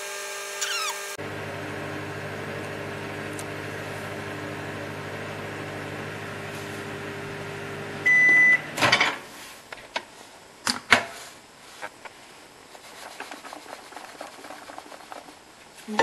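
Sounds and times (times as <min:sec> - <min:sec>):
microwave oven humming: 0:01.2 - 0:09.3
microwave beep: 0:01.4 - 0:09.0
clicks: 0:02.5 - 0:03.6.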